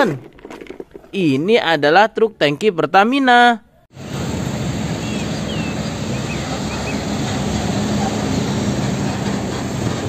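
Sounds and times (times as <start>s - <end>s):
road traffic noise: 3.9s - 10.0s
truck diesel engine running: 4.0s - 10.0s.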